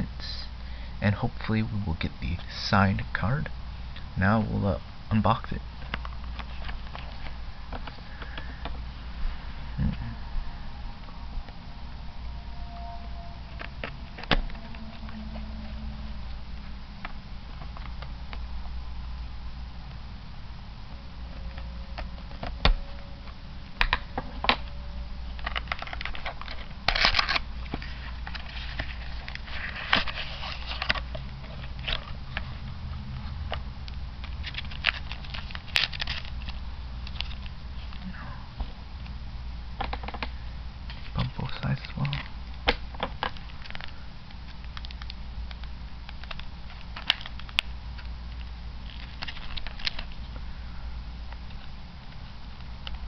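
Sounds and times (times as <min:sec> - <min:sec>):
steady low hum: 0:00.0 - 0:53.0
crackly cardboard rustling: 0:25.4 - 0:33.6, 0:34.2 - 0:38.0, 0:43.0 - 0:50.4.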